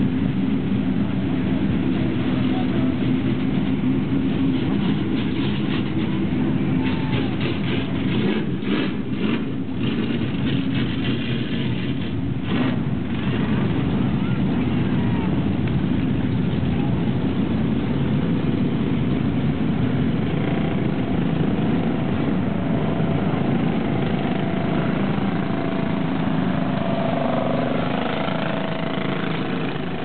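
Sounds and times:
race car engines running slowly: 0.0 - 30.0.

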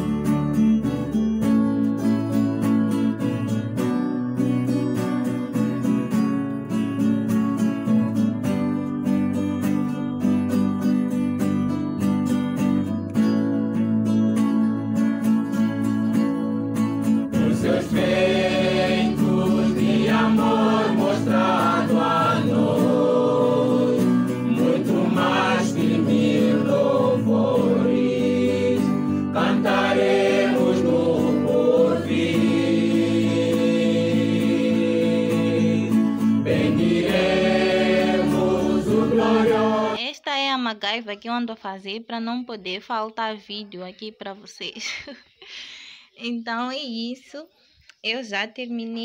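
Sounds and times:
instrumental accompaniment: 0.1 - 40.0
choir singing gospel song: 17.3 - 40.0.

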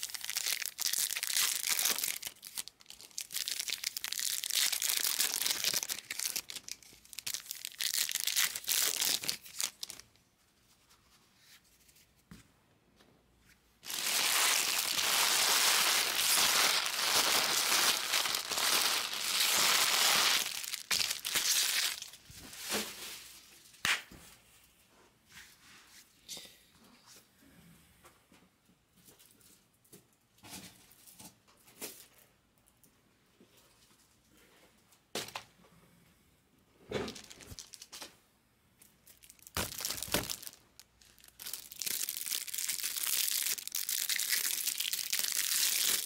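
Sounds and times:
wrappers crinkling and tearing: 0.0 - 10.0, 13.8 - 23.3, 37.1 - 37.9, 39.0 - 46.0.

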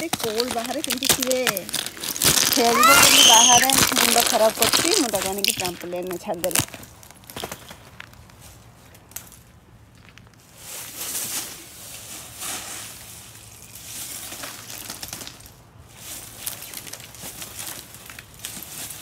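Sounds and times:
ice shards clinking: 0.0 - 6.7
ice crunching and cracking: 0.0 - 10.5.

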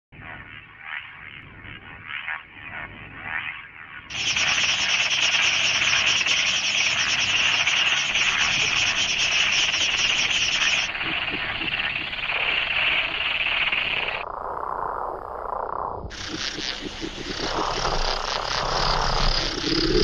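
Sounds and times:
frog chorus rasping: 4.1 - 20.0.

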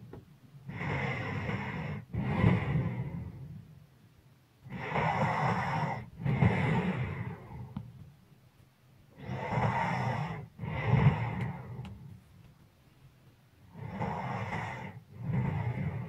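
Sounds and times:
person snoring: 0.7 - 3.6, 4.7 - 7.8, 9.1 - 12.0, 13.7 - 16.0.

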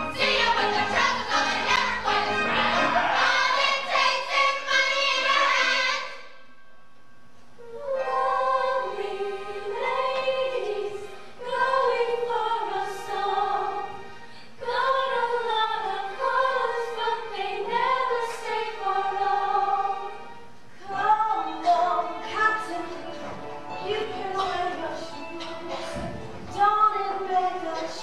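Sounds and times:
women's chorus singing: 0.0 - 6.3, 7.7 - 20.2.

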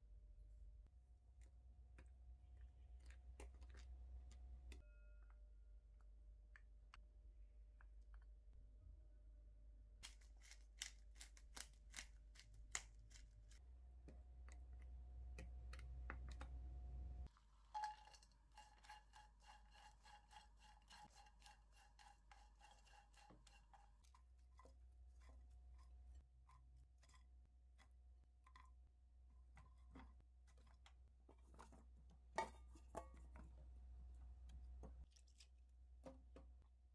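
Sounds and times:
wooden spatula stirring in wok: 17.6 - 27.2
wooden spoon scraping ceramic bowl: 17.8 - 28.7.

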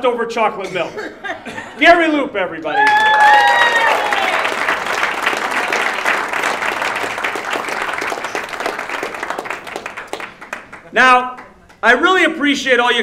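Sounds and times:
audience applauding: 2.6 - 11.8.

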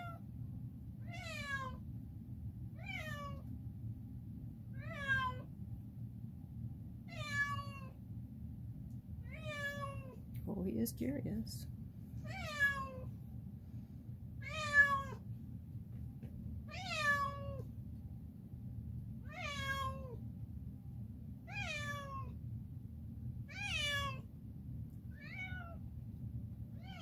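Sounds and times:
low steady hum: 0.0 - 27.0
cat meowing: 1.0 - 1.8, 2.8 - 3.5, 4.8 - 5.5, 7.1 - 8.0, 9.2 - 10.2, 12.2 - 13.1, 14.4 - 15.2, 16.7 - 17.7, 19.2 - 20.2, 21.5 - 22.4, 23.5 - 24.3, 25.1 - 25.8, 26.8 - 27.0.

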